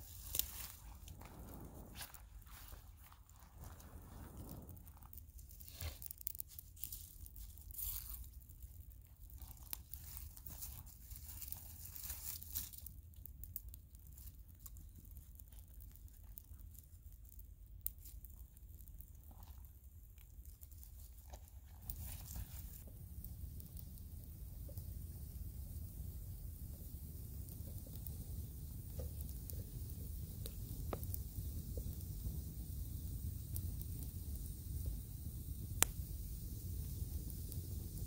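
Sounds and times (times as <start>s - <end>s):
sticks fed onto fire: 0.0s - 8.3s, 35.5s - 38.0s
campfire crackling and popping: 0.0s - 38.0s.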